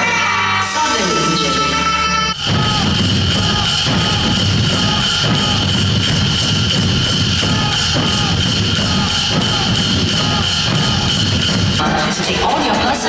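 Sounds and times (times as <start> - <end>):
barrel drums beating: 2.4 - 12.8.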